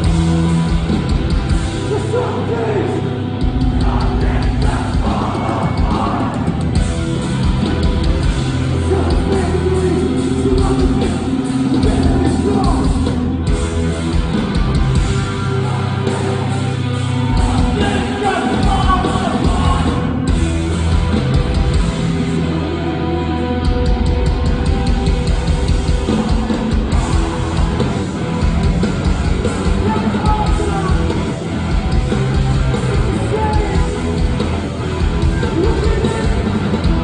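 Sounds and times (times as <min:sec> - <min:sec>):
distorted guitars: 0:00.0 - 0:37.0
drums: 0:00.0 - 0:37.0
punk band playing live: 0:00.0 - 0:37.0
shouted vocals: 0:03.7 - 0:06.6, 0:15.3 - 0:20.2.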